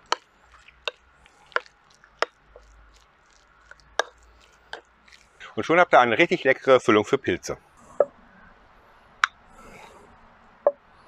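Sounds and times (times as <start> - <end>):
filling squelching: 0.0 - 5.6.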